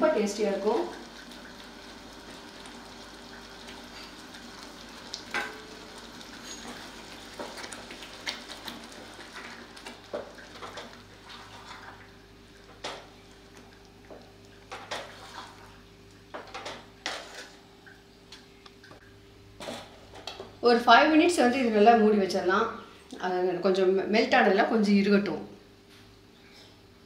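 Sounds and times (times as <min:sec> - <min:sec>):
food sizzling and bubbling in a pan: 0:00.0 - 0:19.0.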